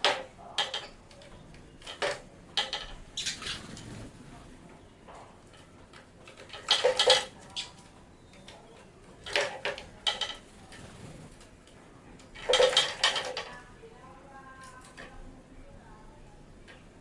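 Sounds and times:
bird wing flaps: 0:10.7 - 0:11.4.

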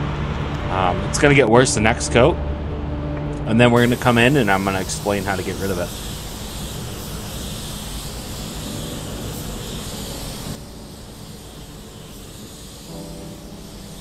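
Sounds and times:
spray booth airflow rushing: 0:03.8 - 0:14.0
spray gun hissing: 0:03.8 - 0:14.0.

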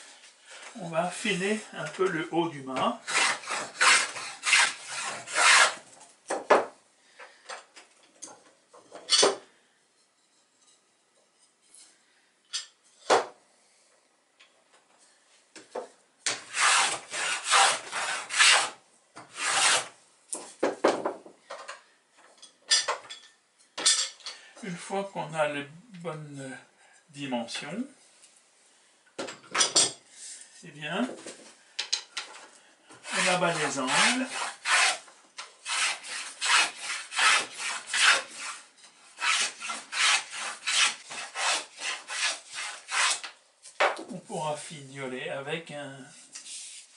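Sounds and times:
hand plane shaving wood: 0:03.1 - 0:05.8, 0:16.4 - 0:19.9, 0:33.0 - 0:35.0, 0:35.6 - 0:43.3.

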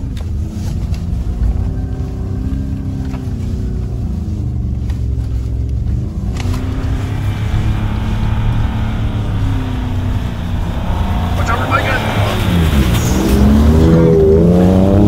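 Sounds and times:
truck engine revving hard: 0:06.0 - 0:15.0.

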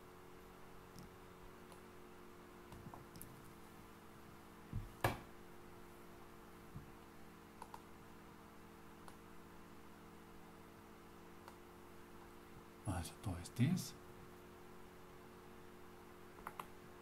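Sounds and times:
faint electrical hum: 0:00.0 - 0:17.0
computer mouse clicks: 0:07.6 - 0:07.9, 0:09.0 - 0:09.2, 0:16.4 - 0:16.8.

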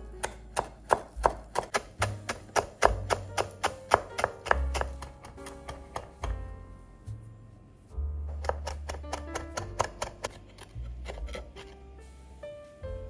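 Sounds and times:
background music: 0:00.0 - 0:13.0
knife chopping on wooden board: 0:00.2 - 0:06.4, 0:08.3 - 0:11.8.

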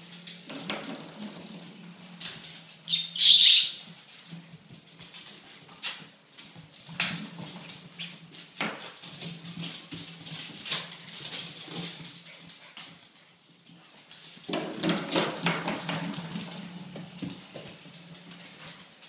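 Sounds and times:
dog claws clicking on floor: 0:00.0 - 0:19.0
dogs scuffling on floor: 0:00.0 - 0:19.0.

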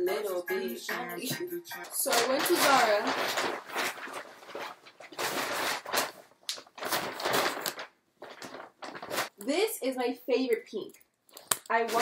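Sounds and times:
shopping bag rustling and crinkling: 0:02.0 - 0:09.4, 0:11.7 - 0:12.0.

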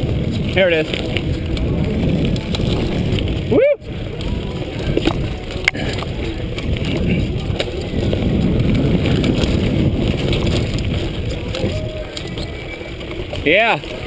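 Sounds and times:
bike rattling over bumps: 0:00.0 - 0:14.0
tyres rumbling over dirt trail: 0:00.0 - 0:14.0
wind buffeting microphone: 0:00.0 - 0:14.0.

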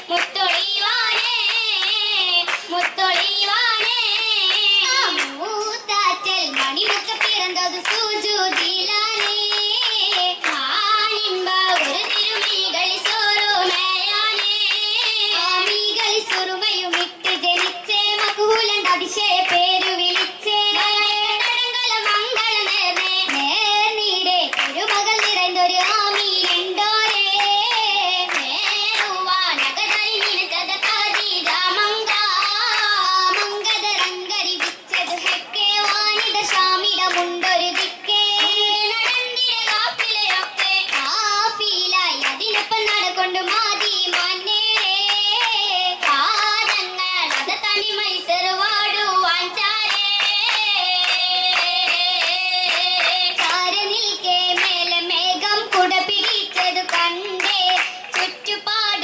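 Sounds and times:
hands clapping in rhythm: 0:00.0 - 0:59.0
young women singing: 0:00.0 - 0:59.0.

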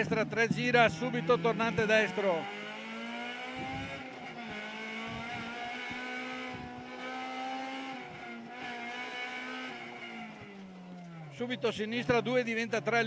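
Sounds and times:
car engine at high revs: 0:00.0 - 0:13.0.

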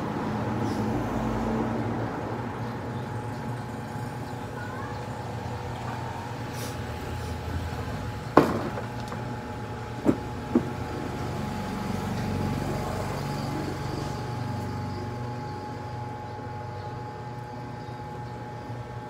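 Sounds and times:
sharp knocks: 0:08.4 - 0:09.2.

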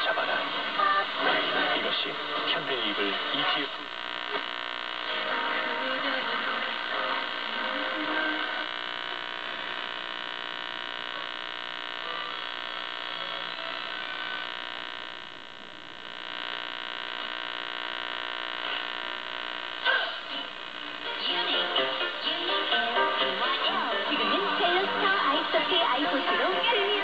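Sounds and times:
faint radio broadcast: 0:00.0 - 0:27.0
radio hiss and hum: 0:00.0 - 0:27.0.

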